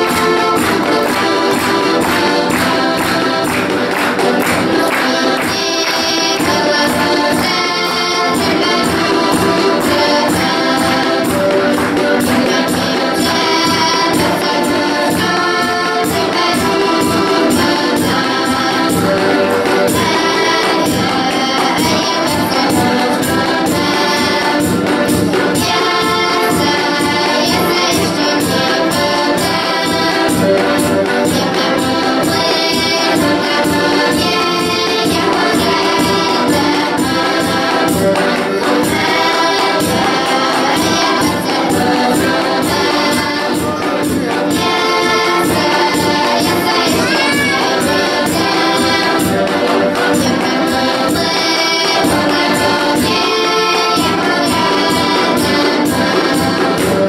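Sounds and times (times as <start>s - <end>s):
accordions playing folk tune: 0.0s - 57.0s
children singing: 0.0s - 57.0s
jingling percussion stick: 0.0s - 57.0s.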